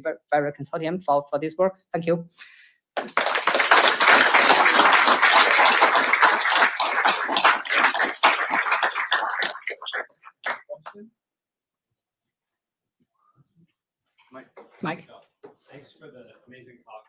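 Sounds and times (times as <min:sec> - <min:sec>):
audience applauding: 0:03.0 - 0:10.9.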